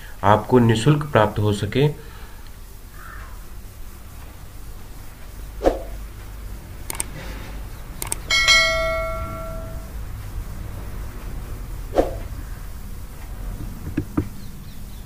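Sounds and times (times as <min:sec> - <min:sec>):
mouse clicks: 0:06.9 - 0:07.1
notification bell ding: 0:08.3 - 0:09.9.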